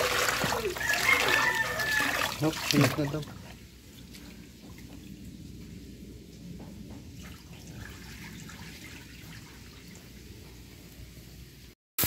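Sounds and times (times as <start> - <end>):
water splashing onto concrete: 0.0 - 5.1
light ticks and drips: 2.7 - 7.8.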